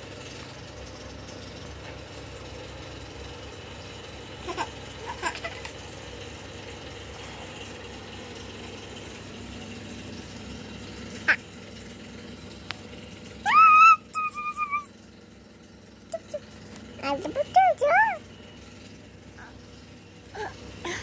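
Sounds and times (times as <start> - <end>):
low background hum: 0.0 - 21.0
toddler squealing: 13.4 - 14.9
toddler vocal sounds: 17.0 - 18.2.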